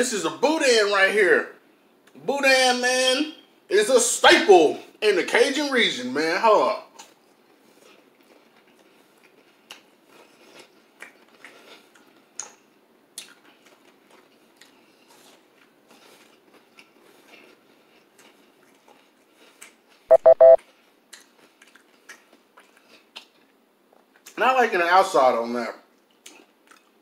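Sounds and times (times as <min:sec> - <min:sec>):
chewing with wet mouth clicks: 0:07.0 - 0:20.0, 0:21.1 - 0:24.4, 0:26.0 - 0:27.0.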